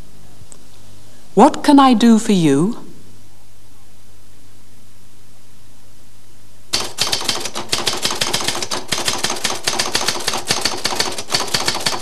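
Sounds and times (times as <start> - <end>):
background hiss: 0.0 - 12.0
typewriter keystrokes: 6.8 - 12.0.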